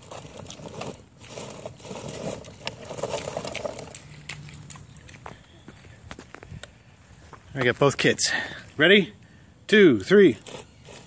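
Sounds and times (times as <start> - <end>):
toy car electric motor whirring: 0.0 - 4.0, 10.4 - 11.0
wheels scraping over concrete: 0.0 - 8.0, 10.0 - 11.0.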